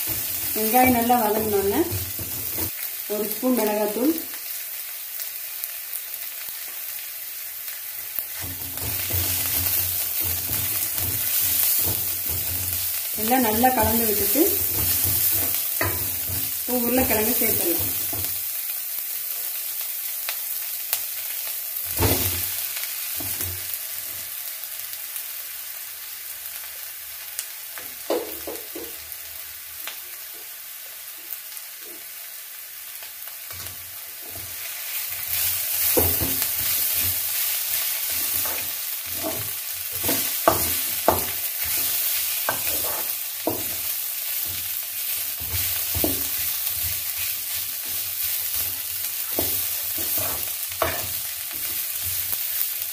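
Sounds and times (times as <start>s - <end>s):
food sizzling in a pan: 0.0s - 52.9s
wooden spatula scraping pan: 38.0s - 43.9s, 49.3s - 51.8s.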